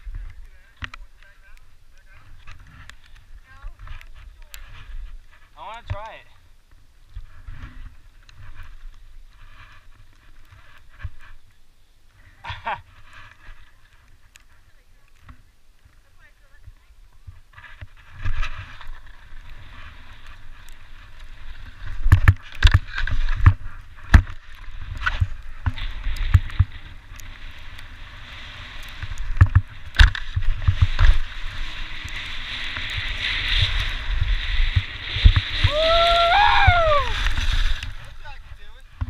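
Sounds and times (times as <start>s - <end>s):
wind rumbling on microphone: 0.0s - 39.0s
skis scraping over snow: 7.2s - 11.4s, 17.2s - 39.0s
person whooping: 35.6s - 37.2s.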